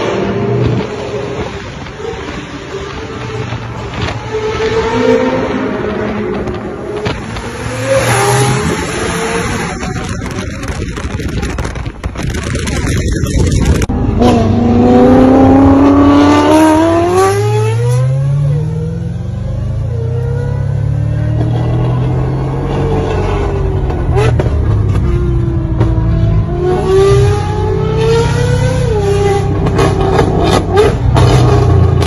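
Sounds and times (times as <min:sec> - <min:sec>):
car engine accelerating through gears: 0:13.4 - 0:32.0.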